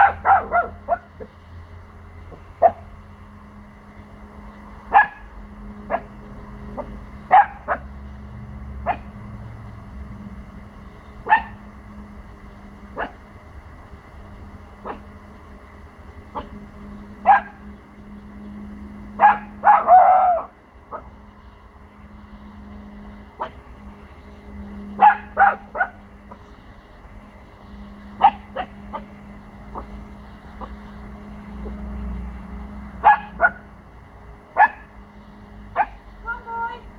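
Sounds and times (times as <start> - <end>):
puppy barking: 0.0 - 1.3, 2.6 - 2.9, 4.9 - 5.3, 5.9 - 7.9, 8.8 - 9.1, 11.2 - 11.6, 12.9 - 13.2, 14.8 - 15.1, 16.3 - 16.6, 17.2 - 17.6, 19.2 - 21.1, 23.4 - 23.6, 25.0 - 26.4, 28.2 - 30.0, 33.0 - 33.7, 34.6 - 34.9, 35.7 - 36.0.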